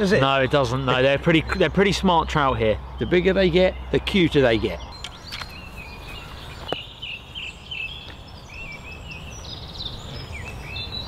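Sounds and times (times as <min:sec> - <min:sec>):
small birds chirping: 0:00.0 - 0:11.0
sharp click: 0:05.0 - 0:05.6.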